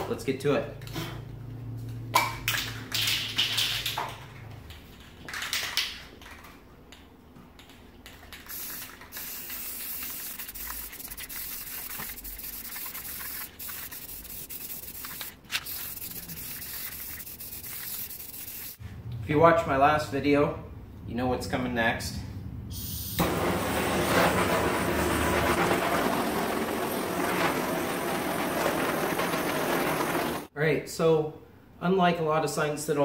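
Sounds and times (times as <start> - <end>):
spray paint can hissing: 8.3 - 18.8, 22.8 - 23.4.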